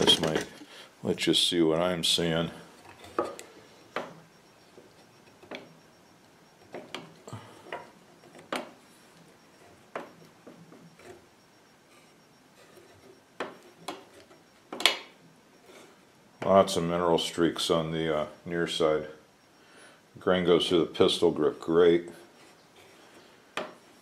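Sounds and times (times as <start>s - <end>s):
wooden knocks and clicks: 6.6s - 8.8s, 9.9s - 11.2s, 23.6s - 23.8s.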